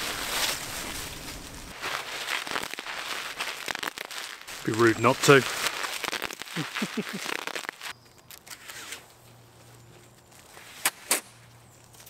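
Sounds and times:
bubble wrap popping: 0.0 - 8.4.

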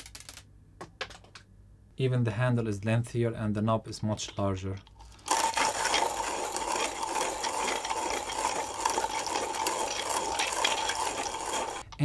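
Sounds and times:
hand coffee grinder grinding: 4.8 - 12.0.

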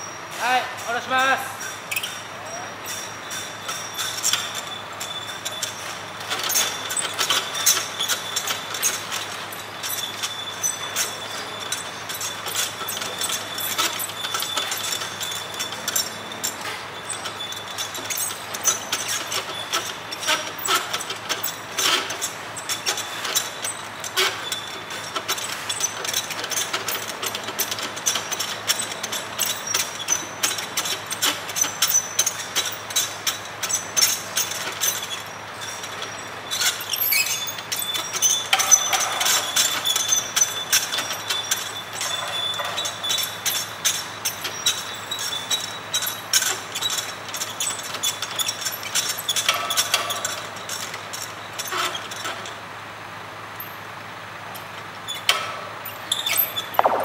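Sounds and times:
metallic clicks and knocks: 55.1 - 57.0
steady high-pitched whine: 56.7 - 57.0.

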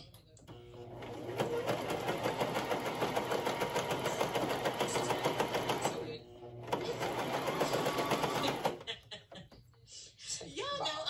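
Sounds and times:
sewing machine stitching: 0.5 - 9.0.

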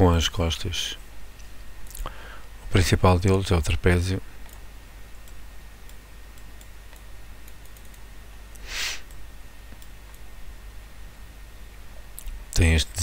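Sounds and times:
computer mouse clicks: 4.4 - 4.6, 5.2 - 10.2
short hiss: 8.6 - 9.1.

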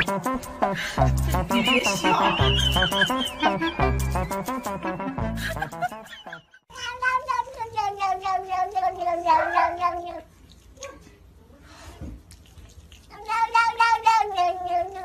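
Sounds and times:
cat yowling: 6.8 - 10.2, 13.2 - 15.0.

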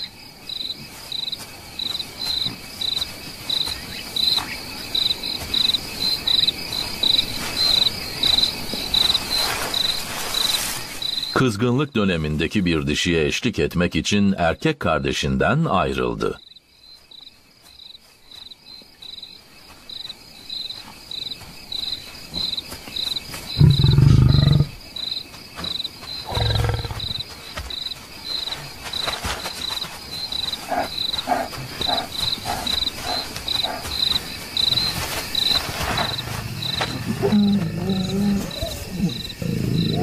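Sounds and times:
insects chirping: 0.0 - 40.0
lion growling: 23.6 - 24.8, 26.2 - 27.2, 36.0 - 40.0.

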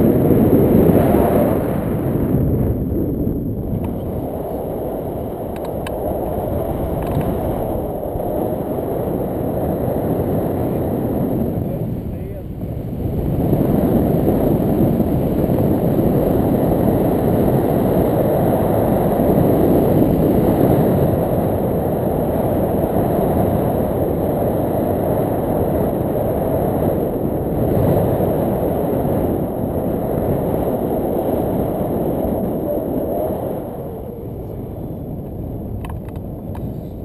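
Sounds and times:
wind rumble on microphone: 0.0 - 37.0.

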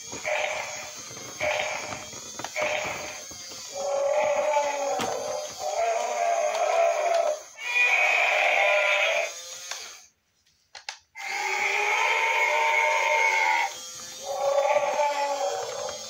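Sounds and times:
toy clicks: 0.0 - 7.5, 9.3 - 10.1
toy motor buzzy whir: 0.0 - 10.2, 11.2 - 16.0.

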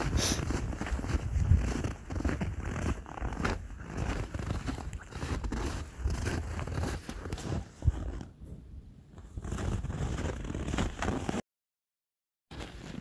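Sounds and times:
footsteps crunching in snow: 0.0 - 8.3, 9.1 - 11.4, 12.5 - 13.0.

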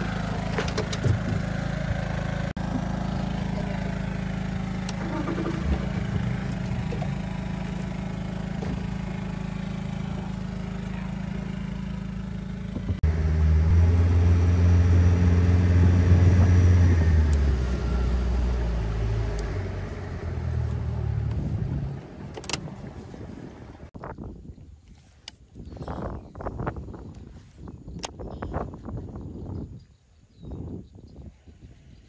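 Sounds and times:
outboard motor running: 0.0 - 23.9.

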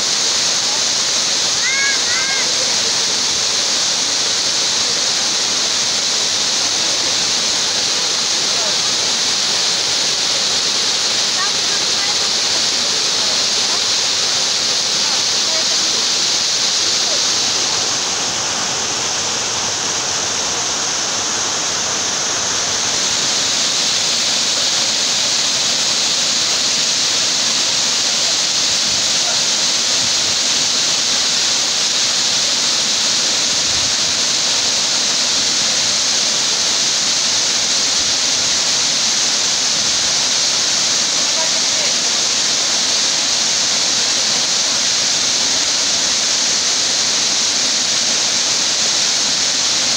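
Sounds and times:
waterfall splashing: 0.0 - 49.9.

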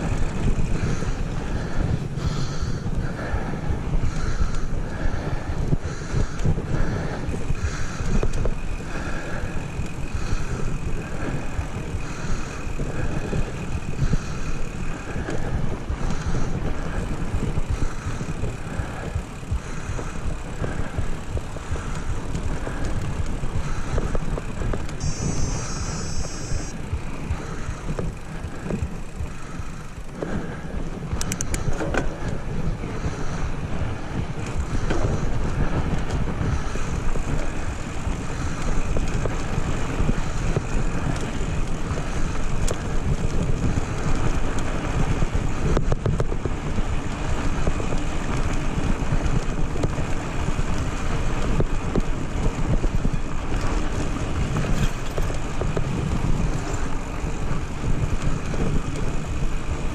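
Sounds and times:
bike tyres rolling on gravel: 0.0 - 59.9
wind buffeting microphone: 0.0 - 59.9
sharp clicks: 31.2 - 32.1.

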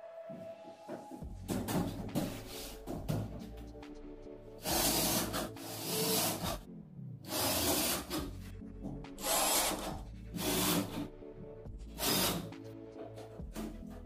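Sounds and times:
cordless drill driving screws: 4.6 - 6.6, 9.2 - 11.0, 12.0 - 12.5.

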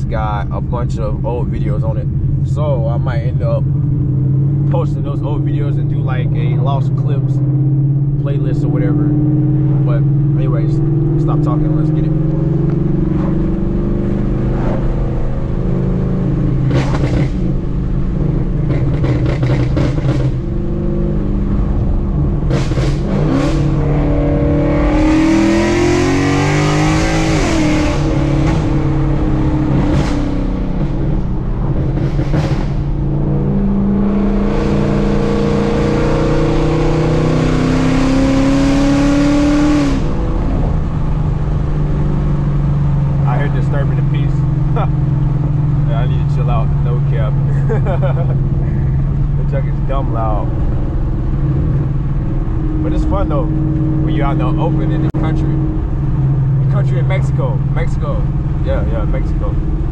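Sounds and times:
car engine revving: 0.0 - 59.9
exhaust pops and cracks: 16.7 - 17.6, 18.6 - 20.4.

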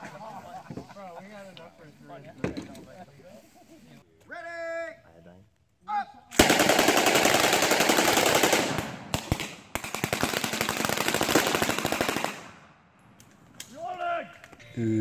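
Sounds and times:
rapid small-arms fire: 6.4 - 12.6.

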